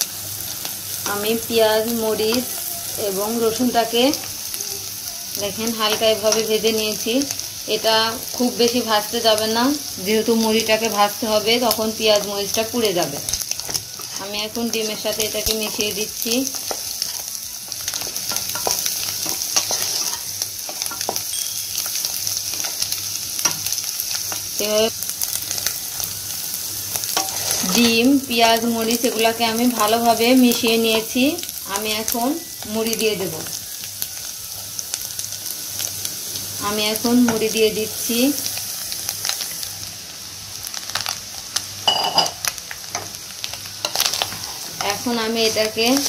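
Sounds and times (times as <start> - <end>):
oil sizzling in a frying pan: 0.0 - 46.0
spatula scraping and tapping pan: 16.6 - 21.3, 27.1 - 28.6.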